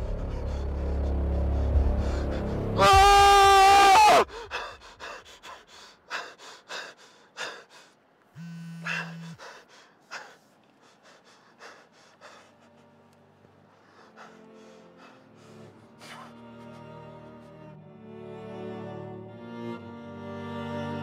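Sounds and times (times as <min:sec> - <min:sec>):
man gasping and panting: 0:04.1 - 0:13.0, 0:13.8 - 0:16.9
electronic buzz: 0:08.4 - 0:09.4
loud sustained tone: 0:08.4 - 0:09.4.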